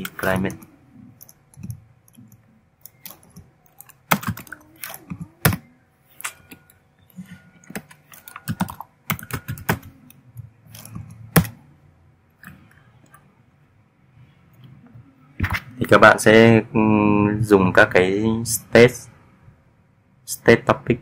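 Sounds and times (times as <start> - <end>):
typing on computer keyboard: 0.0 - 5.6, 7.6 - 11.6.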